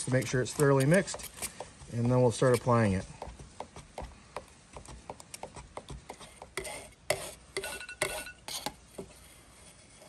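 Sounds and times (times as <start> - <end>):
metal ruler scraping paint can: 0.0 - 1.6, 6.2 - 10.0
metallic ring: 7.6 - 8.4.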